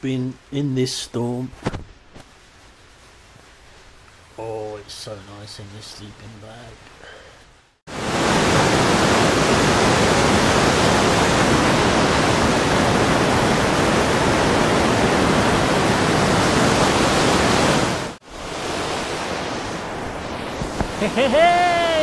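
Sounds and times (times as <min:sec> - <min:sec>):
river rushing over boulders: 0:07.9 - 0:22.0.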